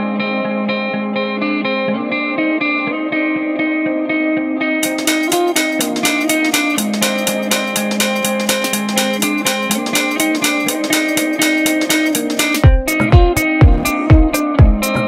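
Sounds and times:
plucked guitar: 0:00.0 - 0:15.0
drum kit steady beat: 0:04.8 - 0:15.0
heavy kick drum: 0:04.8 - 0:15.0.

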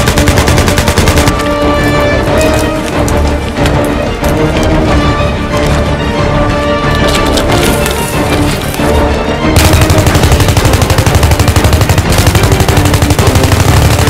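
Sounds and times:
rapid automatic rifle fire: 0:00.0 - 0:01.3, 0:09.6 - 0:14.0
film score music: 0:00.0 - 0:14.0.

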